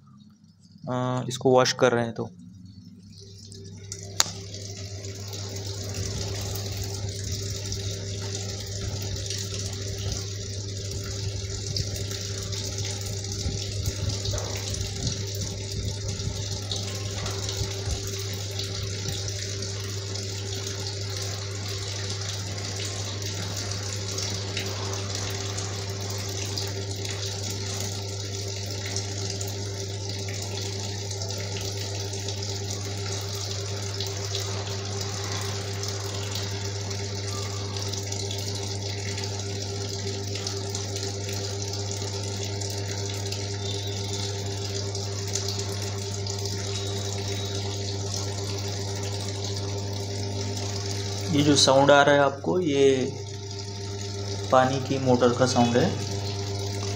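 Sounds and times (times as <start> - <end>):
water churning in washing machine: 0.0 - 56.9
water pump motor humming: 0.0 - 56.9.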